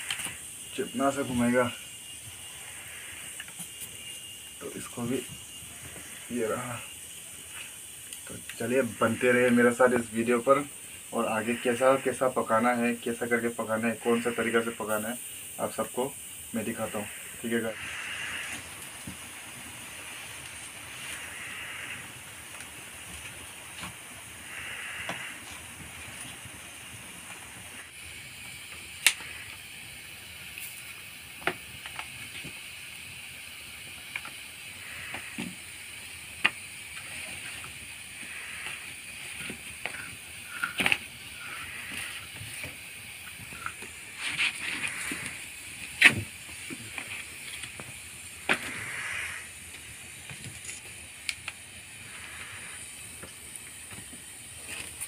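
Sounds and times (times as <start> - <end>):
fire cracks and pops: 0.0 - 0.6, 7.1 - 8.6, 17.9 - 55.0
wood fire hissing: 0.0 - 55.0.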